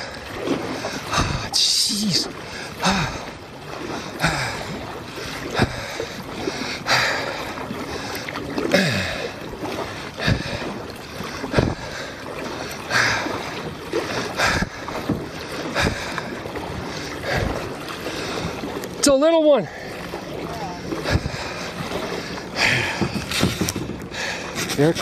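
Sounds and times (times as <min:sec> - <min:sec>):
paddle strokes splashing water: 0:00.0 - 0:25.0.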